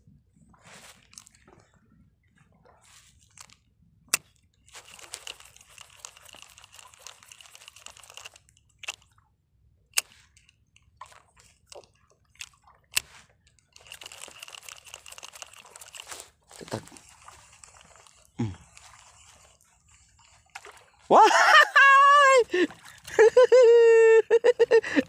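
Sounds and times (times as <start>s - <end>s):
reel clicks: 3.1s - 9.2s, 9.9s - 20.9s
fishing reel whirring: 4.8s - 9.0s, 13.7s - 20.8s.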